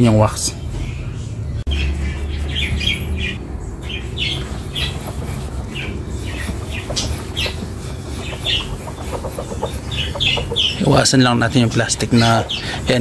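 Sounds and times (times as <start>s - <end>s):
chickens clucking and squawking: 3.8s - 13.0s.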